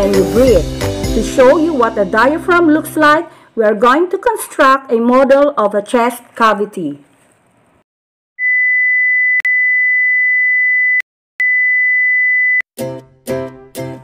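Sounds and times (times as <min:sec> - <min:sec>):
background music: 0:00.0 - 0:03.7, 0:12.8 - 0:14.0.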